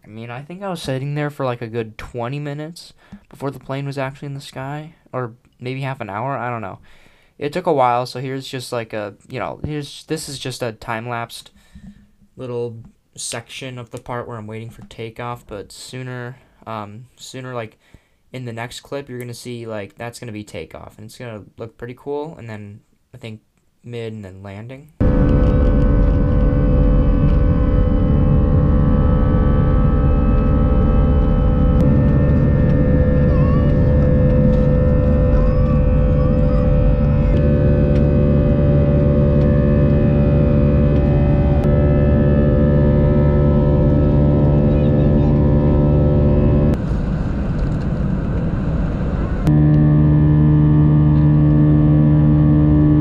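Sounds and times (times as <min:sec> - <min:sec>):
jet engines deep rumble: 0:25.0 - 0:50.2
jet engine whine: 0:25.0 - 0:53.0.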